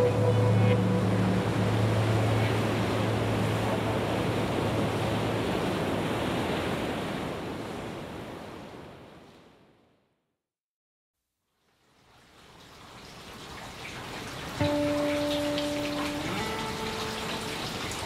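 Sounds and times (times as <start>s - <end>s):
rushing wash of noise: 0.0s - 8.0s.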